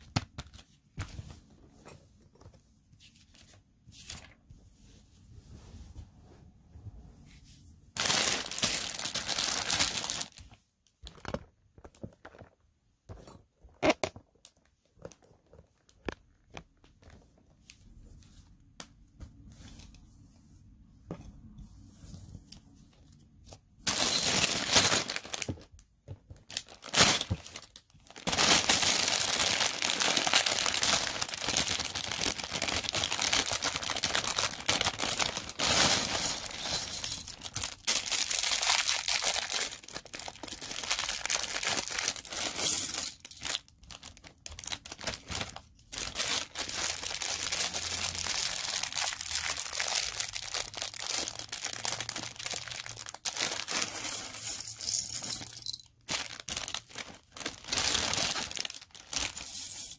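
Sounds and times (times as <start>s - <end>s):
packaging tearing and crinkling: 8.0s - 10.4s, 23.9s - 25.7s, 26.5s - 54.1s, 56.0s - 59.4s.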